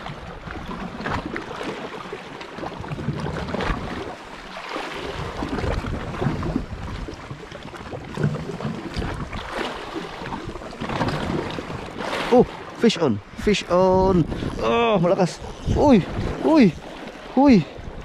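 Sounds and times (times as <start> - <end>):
seawater lapping against rocks: 0.0 - 18.0
wind buffeting microphone: 5.0 - 9.5, 13.2 - 18.0.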